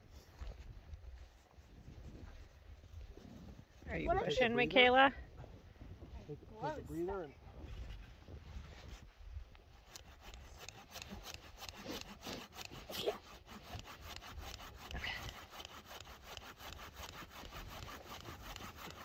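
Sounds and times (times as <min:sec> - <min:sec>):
hand saw cutting wood: 0:09.7 - 0:19.0.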